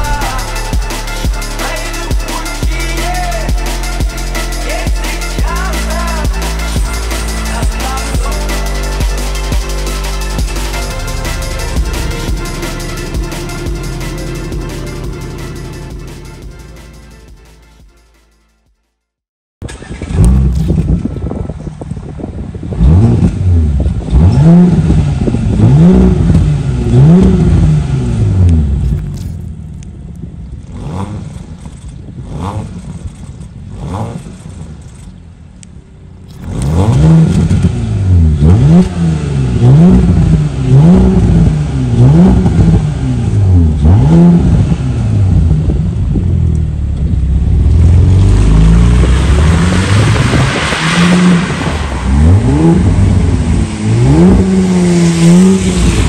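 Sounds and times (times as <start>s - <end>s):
car engine revving: 0.0s - 17.9s, 19.6s - 56.0s.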